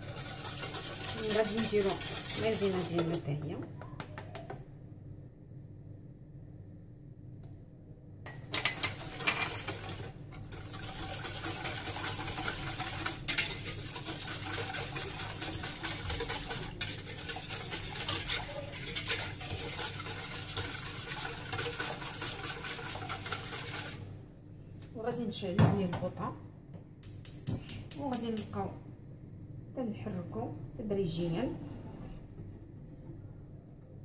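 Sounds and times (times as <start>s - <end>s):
utensil scraping a saucepan: 0.0s - 3.4s, 8.3s - 24.1s.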